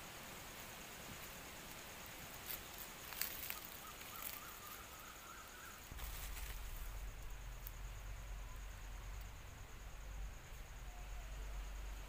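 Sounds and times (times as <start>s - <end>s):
steady high hum: 0.0s - 12.0s
low rumble: 5.8s - 12.0s.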